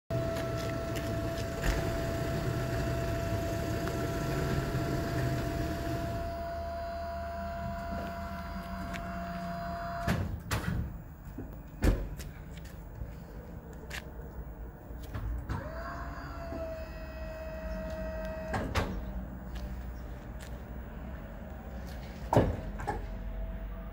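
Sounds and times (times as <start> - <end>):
hydraulic lift whining: 0.1 - 10.5, 15.4 - 19.2.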